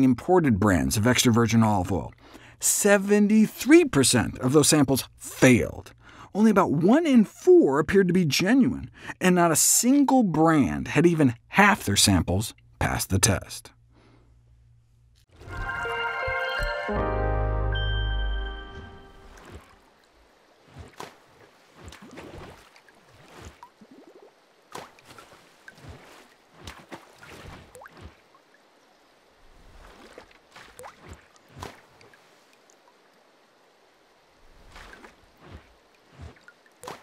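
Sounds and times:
water splashes and drips: 19.1s - 37.0s.

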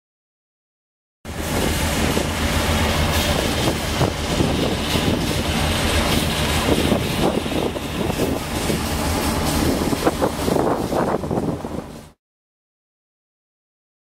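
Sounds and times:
ferry engines droning: 1.3s - 12.2s
wind buffeting microphone: 1.3s - 12.2s.

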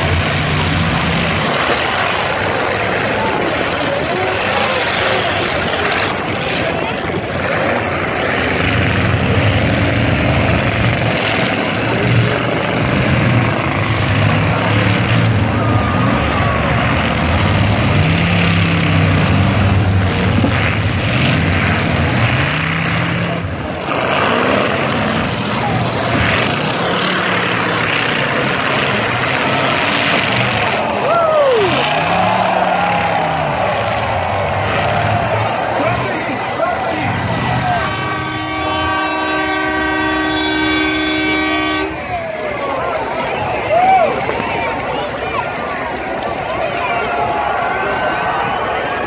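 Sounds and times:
car engines revving: 0.0s - 49.0s.

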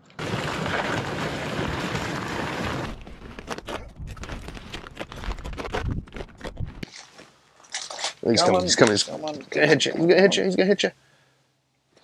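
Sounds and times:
sled scraping over snow: 0.0s - 6.8s
crunching footsteps in snow: 0.2s - 7.7s.

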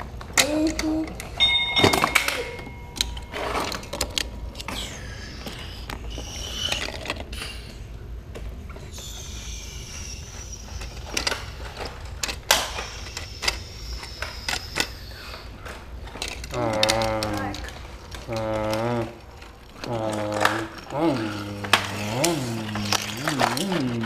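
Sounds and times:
plastic clicks and clatter of toy car: 3.0s - 7.5s, 10.3s - 24.0s.

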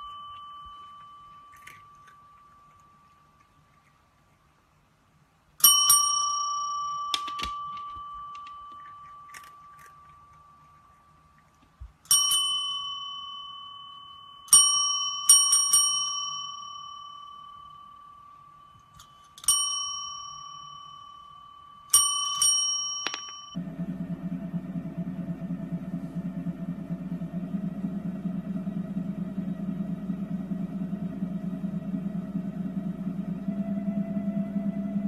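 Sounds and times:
service bell dinging: 0.0s - 3.0s, 5.6s - 8.9s, 12.1s - 23.6s.

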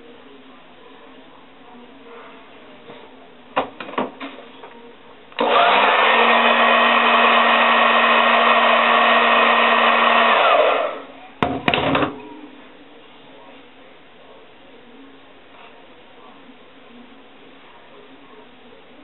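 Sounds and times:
hair dryer blowing: 5.4s - 11.1s.

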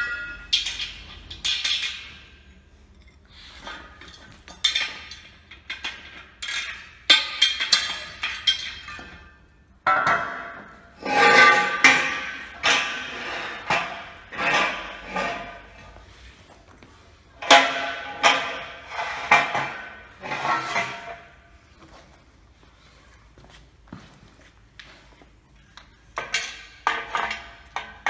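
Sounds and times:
steel sections clanking: 0.0s - 16.0s.

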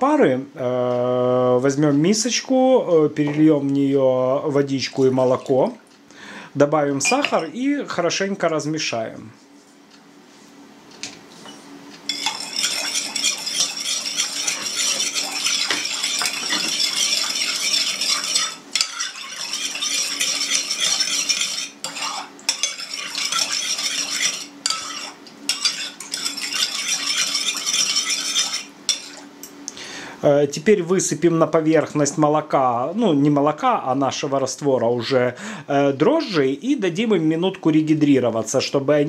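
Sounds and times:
metal spoon stirring in bowl: 7.0s - 7.6s, 12.0s - 29.3s.

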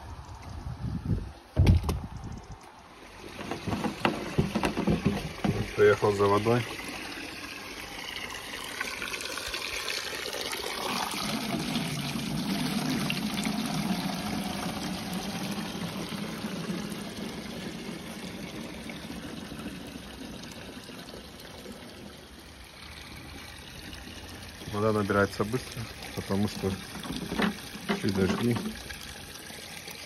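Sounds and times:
water splashing into stone trough: 3.0s - 30.0s
water drumming into plastic canister: 3.1s - 7.0s, 24.6s - 29.2s.

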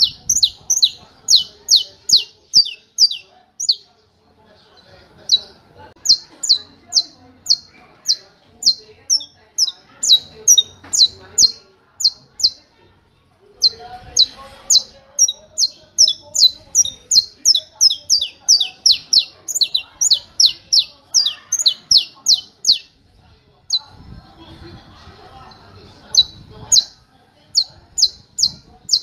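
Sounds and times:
finch singing sharp high notes: 0.0s - 3.8s, 13.6s - 22.9s.

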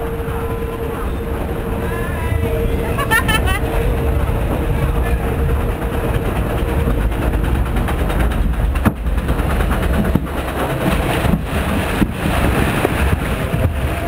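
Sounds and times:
heavy low rumble: 0.0s - 14.0s
sharp knocks: 7.2s - 13.8s
water rushing and splashing: 9.0s - 14.0s.

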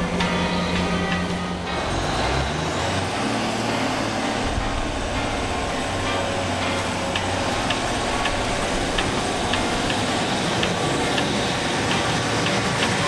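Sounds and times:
train diesel engines humming: 0.0s - 13.0s
light ticking: 5.1s - 13.0s.

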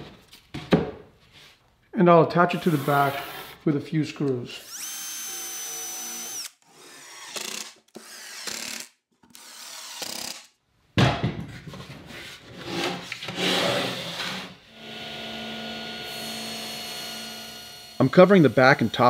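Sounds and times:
cordless drill boring into wood: 4.6s - 10.5s, 14.8s - 19.0s
cordless driver driving screws: 4.6s - 10.5s.

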